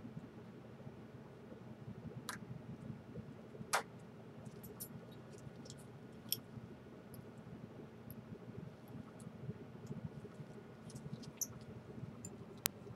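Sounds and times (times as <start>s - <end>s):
low steady hum: 0.0s - 12.9s
small parts clicking and tapping: 4.5s - 6.5s.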